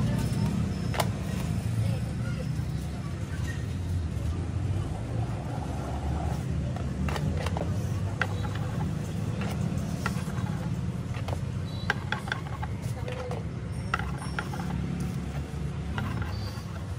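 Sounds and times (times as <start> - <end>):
spatula clicking and tapping: 6.9 - 15.0.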